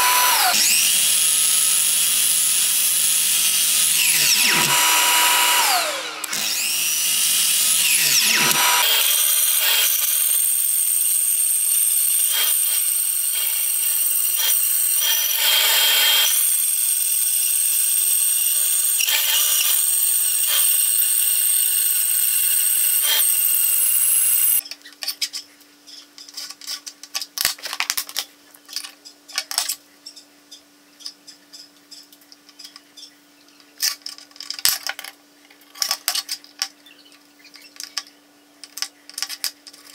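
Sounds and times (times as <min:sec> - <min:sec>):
saw blade whine spinning down: 0:00.0 - 0:10.0, 0:21.9 - 0:24.6
band saw cutting metal: 0:00.0 - 0:24.6.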